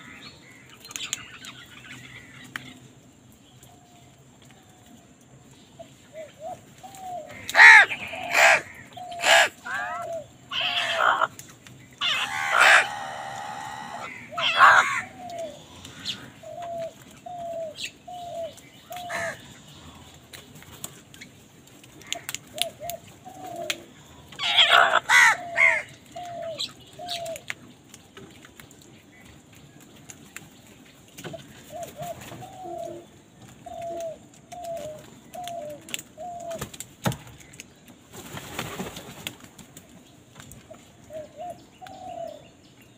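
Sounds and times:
crows cawing: 7.3 - 11.3, 12.0 - 16.3, 19.0 - 19.4, 24.4 - 25.9.

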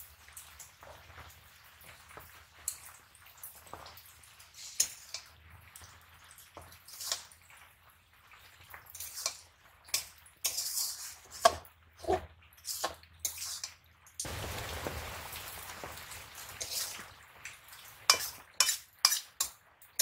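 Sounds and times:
metal spatula scraping wok: 4.5 - 5.3, 6.9 - 7.3, 8.9 - 13.8, 16.5 - 17.1, 18.0 - 20.0
steady hiss: 14.3 - 17.1.

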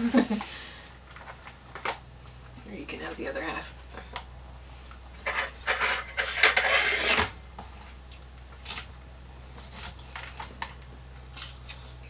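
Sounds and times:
forks scraping and clinking on plates: 5.2 - 7.3.

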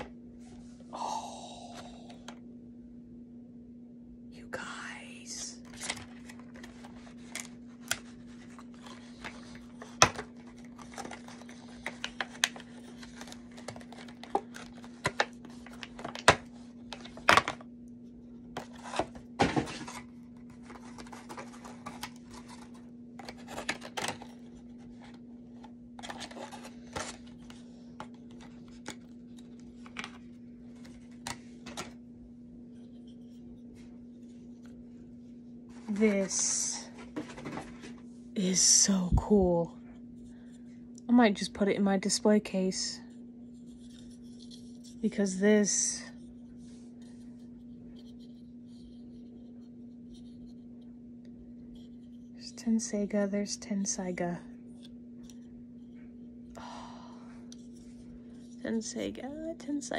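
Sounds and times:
steady low hum: 0.0 - 59.9
plastic packaging crinkling: 5.6 - 17.7, 18.6 - 31.9.

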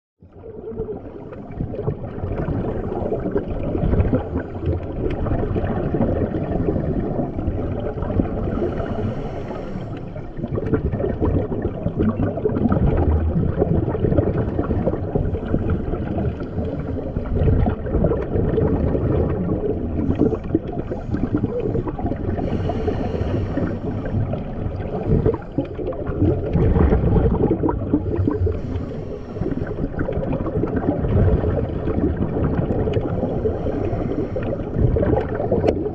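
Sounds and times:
underwater water sloshing: 0.3 - 35.9
bubbling bursts: 0.4 - 9.4, 10.2 - 35.9.

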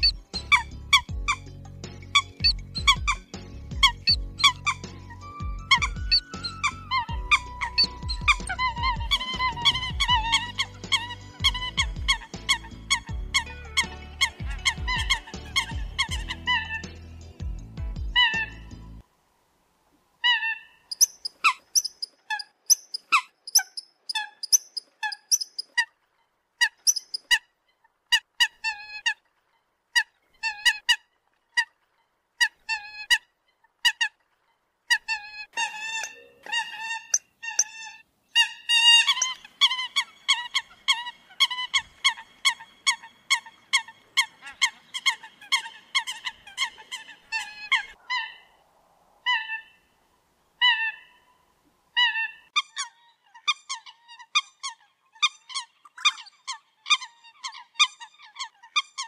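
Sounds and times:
coot calling sharp notes: 2.2 - 17.0.

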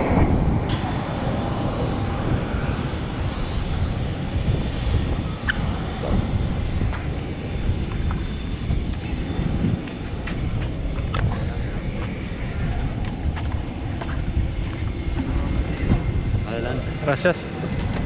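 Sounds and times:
aircraft engine rumble: 0.0 - 18.0.

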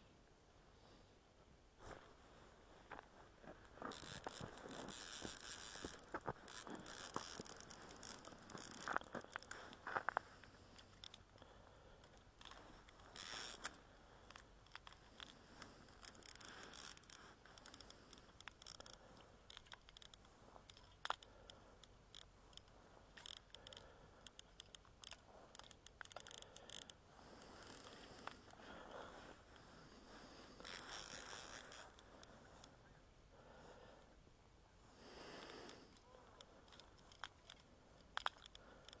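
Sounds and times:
small clicks of fishing rod: 3.9 - 28.6, 30.6 - 32.8, 35.2 - 39.0.

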